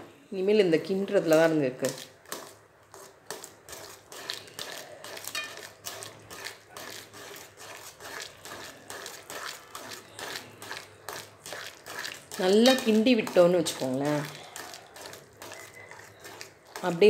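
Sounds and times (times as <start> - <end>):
metal spoon scraping a pan: 1.7 - 17.0.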